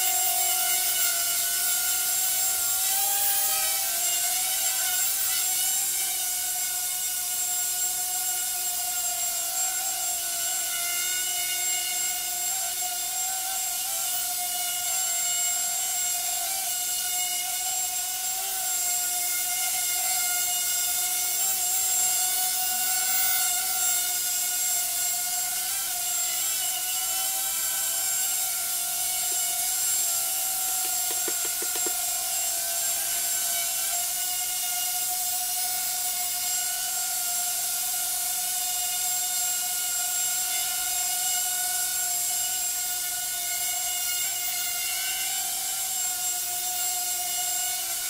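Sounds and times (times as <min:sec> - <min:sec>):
small drone whining: 0:00.0 - 0:10.6, 0:14.8 - 0:34.3.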